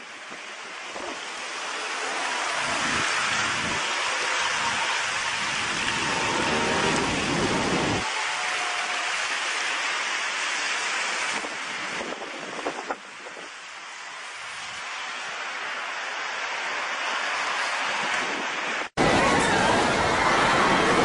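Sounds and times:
steady rushing noise: 0.0s - 21.0s
wind buffeting microphone: 0.3s - 8.2s, 11.2s - 13.7s.

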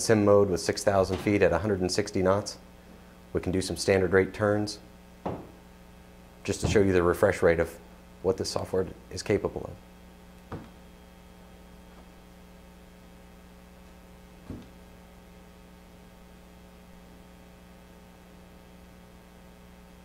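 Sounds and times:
low electrical hum: 0.0s - 20.0s
soft thump: 5.2s - 5.6s, 6.6s - 6.9s, 14.4s - 14.8s.

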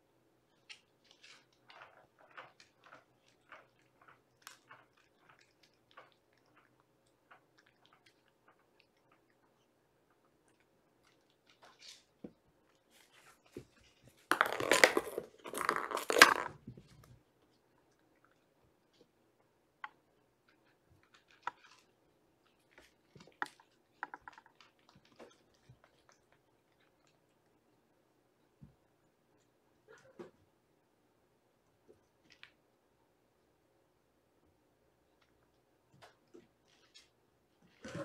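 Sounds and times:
kittens scratching and rustling: 0.5s - 17.2s.

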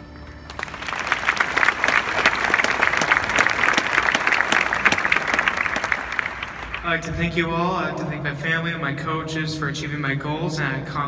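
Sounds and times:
audience applauding: 0.4s - 7.1s.

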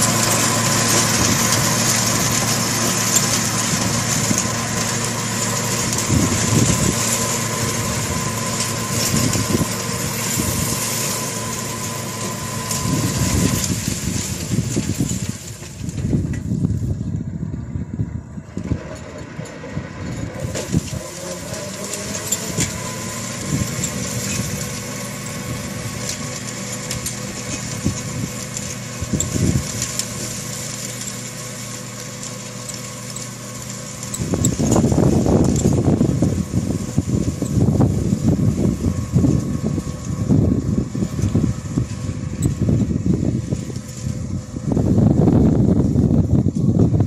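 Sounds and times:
flail mower cutting grass: 0.0s - 47.0s
tractor diesel engine running: 0.0s - 47.0s
wind buffeting microphone: 5.8s - 10.8s, 12.8s - 18.9s, 34.2s - 47.0s.

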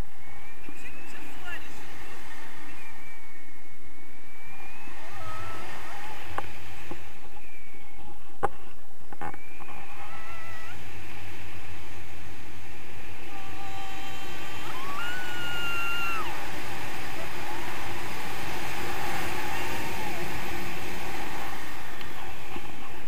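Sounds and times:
thin whistling tones: 0.0s - 6.2s, 7.0s - 8.2s, 9.2s - 10.8s
wind rushing over microphone: 0.0s - 23.0s.

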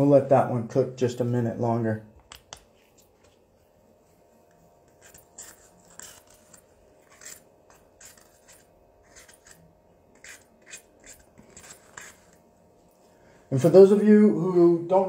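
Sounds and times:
steady low hum: 0.0s - 15.0s
scratchy scraping and rubbing: 4.5s - 12.5s.

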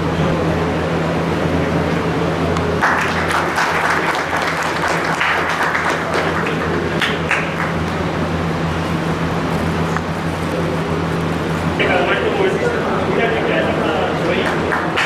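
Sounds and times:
audience clapping: 2.8s - 8.2s, 14.1s - 15.0s.

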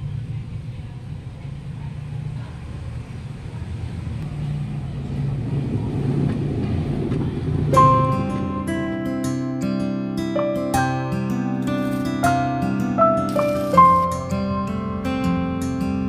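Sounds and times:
low steady rumble: 0.0s - 9.0s.

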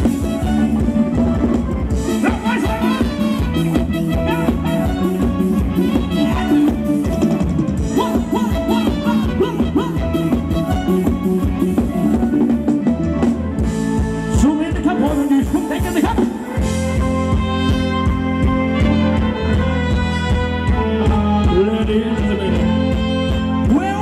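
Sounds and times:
person singing: 0.0s - 7.0s, 7.8s - 12.6s, 20.8s - 24.0s
steady drum beat: 0.0s - 22.0s
bass line: 0.0s - 24.0s.

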